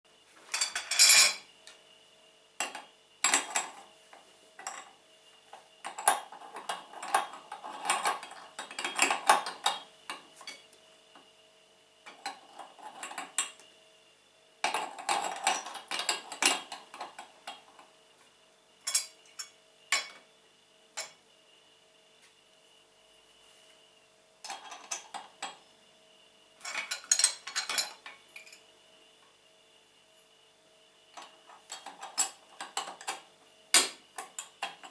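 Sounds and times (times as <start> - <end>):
metal grinder parts clattering: 0.5 - 1.4, 26.6 - 28.6.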